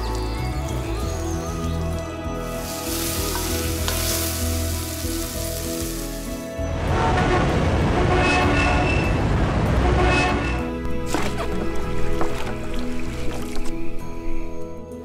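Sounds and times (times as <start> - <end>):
music playing: 0.0 - 15.0
meat sizzling in a wok: 2.5 - 6.4
city traffic rumble: 2.5 - 13.2.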